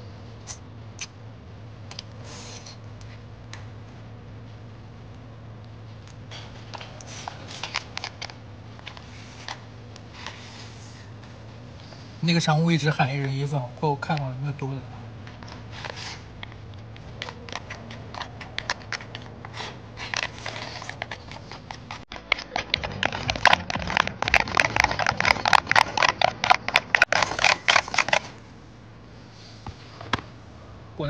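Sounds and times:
chopsticks clicking on plastic box: 0:20.1 - 0:28.2.

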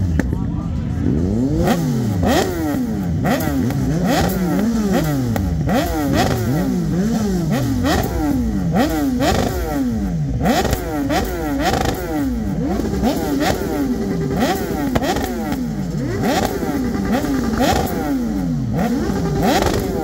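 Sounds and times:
motorcycle engine revving: 0:00.0 - 0:20.0
exhaust cracks: 0:12.7 - 0:18.1.

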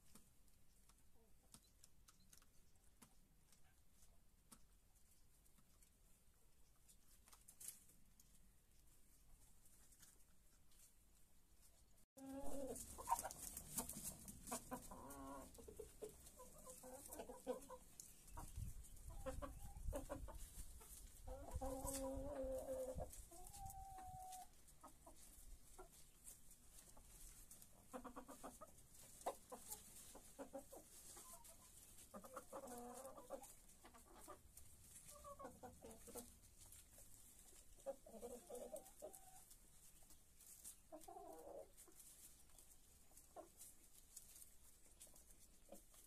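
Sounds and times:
hens clucking: 0:11.7 - 0:46.0.

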